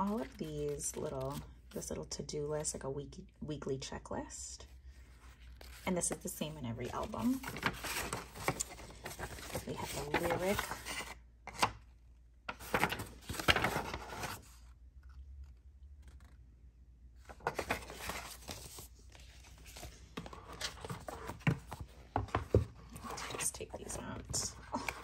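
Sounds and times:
paper rustling and crinkling: 0:00.0 - 0:01.5, 0:05.2 - 0:11.8, 0:12.5 - 0:14.7, 0:17.2 - 0:25.0.

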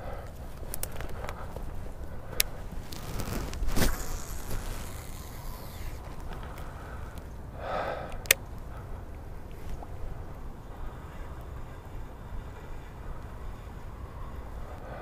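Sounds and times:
handling rumble: 0:00.0 - 0:15.0
wind: 0:00.0 - 0:15.0
fishing line hissing off spool: 0:03.7 - 0:06.1
fishing reel click: 0:03.9 - 0:06.1.

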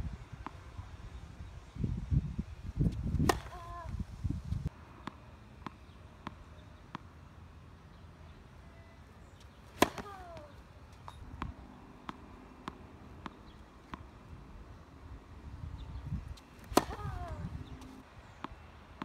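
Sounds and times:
racket hitting tennis ball: 0:03.1 - 0:03.9, 0:09.6 - 0:14.2, 0:16.4 - 0:18.0
ball bouncing on hard court: 0:03.2 - 0:03.7, 0:09.8 - 0:10.4, 0:16.6 - 0:17.4.

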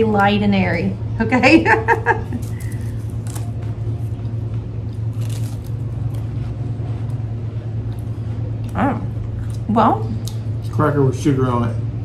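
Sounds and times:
steady low hum: 0:00.0 - 0:12.0
crackers crunching: 0:02.2 - 0:10.6
people chewing: 0:02.2 - 0:10.8.

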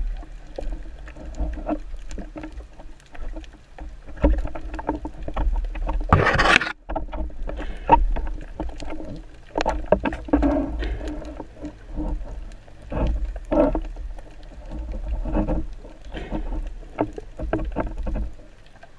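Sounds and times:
underwater clicks and knocks: 0:00.0 - 0:18.9
water sloshing: 0:00.0 - 0:18.9.

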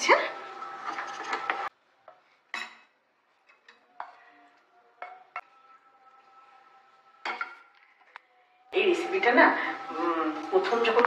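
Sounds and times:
spatula scraping and tapping: 0:00.8 - 0:04.4, 0:05.0 - 0:05.6.

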